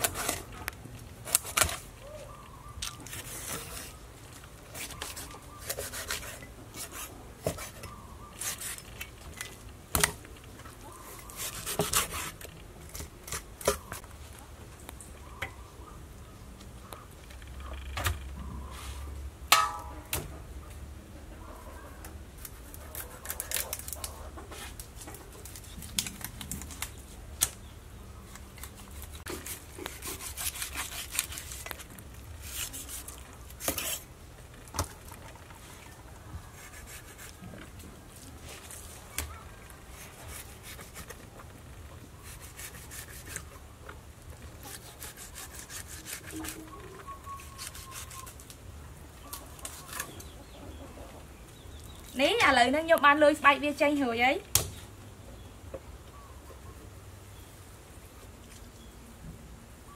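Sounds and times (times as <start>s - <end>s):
cleaver scraping on wooden block: 4.7s - 9.0s, 11.2s - 12.5s, 29.3s - 31.8s, 32.4s - 34.1s, 36.5s - 37.4s, 42.2s - 43.5s, 44.6s - 46.7s.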